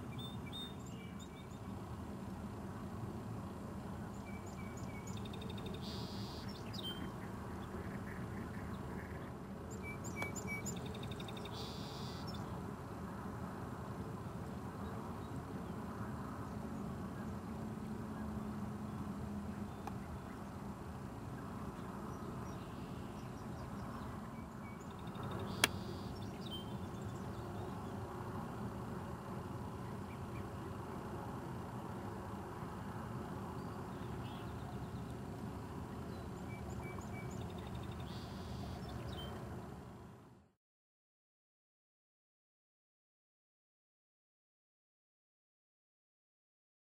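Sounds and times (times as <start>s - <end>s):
songbird singing: 0.0s - 13.3s, 14.4s - 32.3s, 33.2s - 39.9s
low outdoor background noise: 0.0s - 40.6s
sharp click: 25.5s - 25.8s.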